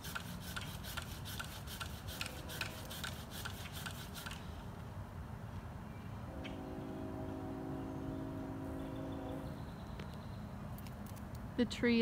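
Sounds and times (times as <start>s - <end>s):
saw rasping through wood: 0.0s - 4.4s.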